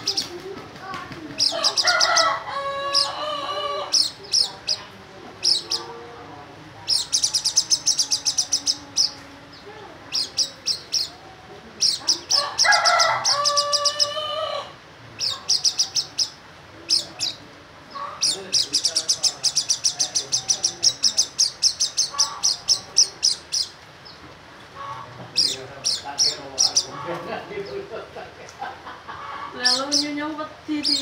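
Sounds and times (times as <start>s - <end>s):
bird chirping and trilling: 0.0s - 0.4s, 1.4s - 6.0s, 6.8s - 24.2s, 24.8s - 27.9s, 29.6s - 31.0s
rooster crowing: 1.5s - 4.1s, 12.3s - 14.8s.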